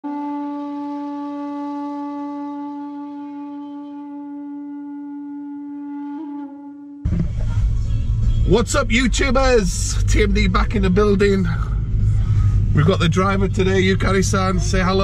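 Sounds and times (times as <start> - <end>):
held horn note: 0.0 - 11.1.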